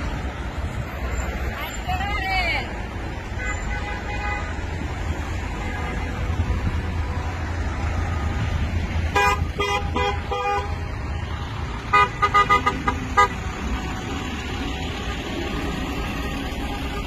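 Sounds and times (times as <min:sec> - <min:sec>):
idling traffic rumble: 0:00.0 - 0:17.0
car horns honking: 0:03.3 - 0:04.8, 0:05.4 - 0:07.4, 0:09.1 - 0:10.9, 0:11.8 - 0:13.6, 0:16.5 - 0:17.0.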